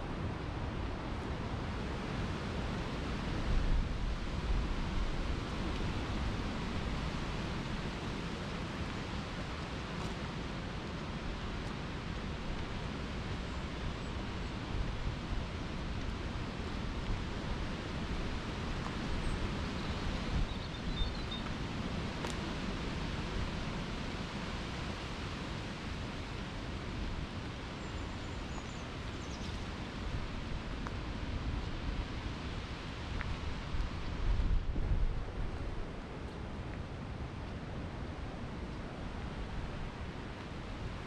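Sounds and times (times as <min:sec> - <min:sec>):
wind buffeting microphone: 0:29.8 - 0:41.0.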